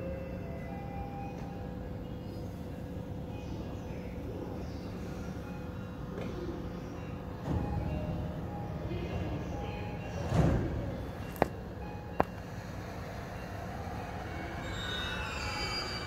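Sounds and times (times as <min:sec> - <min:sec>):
train low rumble: 0:00.0 - 0:16.0
traction motors whining: 0:09.6 - 0:16.0.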